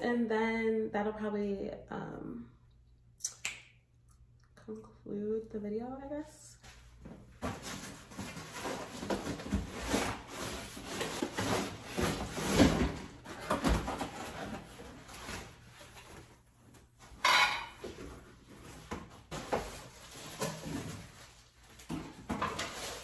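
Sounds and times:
cardboard rustling and knocking: 0:07.0 - 0:16.3.

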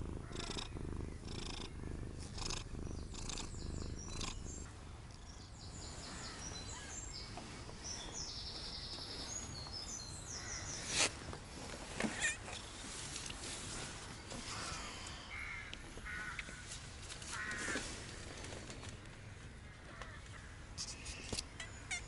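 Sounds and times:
cat purring: 0:00.0 - 0:05.3.

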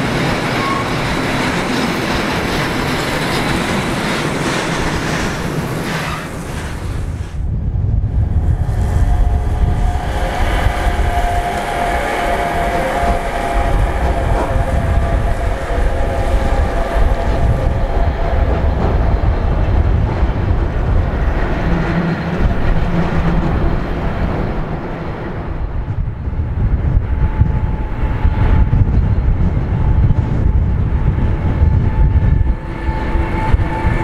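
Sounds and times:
clickety-clack: 0:00.0 - 0:06.8
locomotive whining: 0:00.0 - 0:07.4, 0:08.0 - 0:26.1, 0:26.8 - 0:34.0
locomotive crossing steel bridge: 0:00.0 - 0:34.0
train wheels rumbling on rail: 0:00.0 - 0:34.0.

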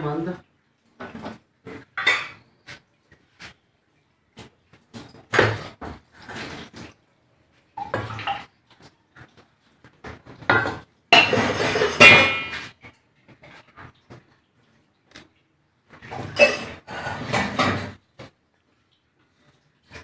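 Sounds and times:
steel bowl clinking and scraping: 0:10.6 - 0:12.9, 0:16.1 - 0:17.9.

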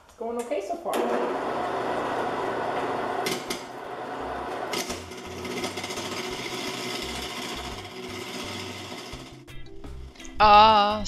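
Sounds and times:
lathe motor hum: 0:01.0 - 0:09.4.

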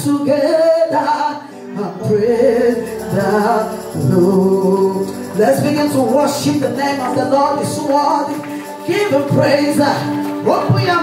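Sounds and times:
instrumental backing: 0:00.0 - 0:11.0
woman singing gospel: 0:01.8 - 0:10.8.

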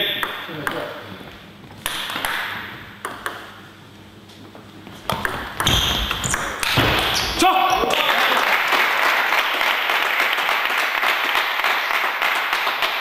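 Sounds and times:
table tennis ball clicking: 0:01.8 - 0:03.5.

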